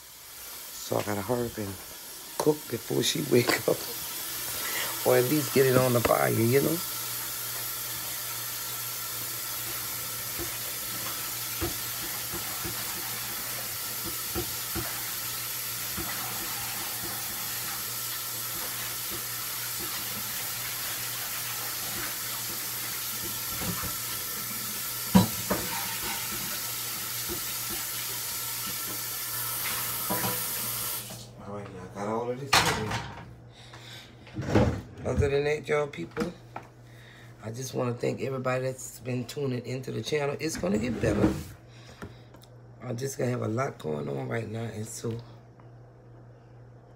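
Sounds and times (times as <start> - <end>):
running water hiss: 0.0 - 31.2.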